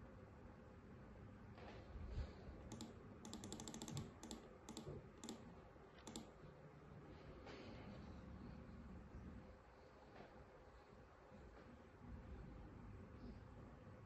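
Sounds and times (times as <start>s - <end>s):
typing on laptop keyboard: 2.7s - 6.3s.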